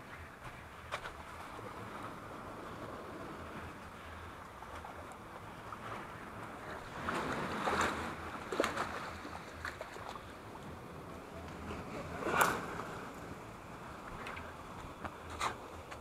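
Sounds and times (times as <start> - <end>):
sea waves washing against rocks: 5.1 - 16.0.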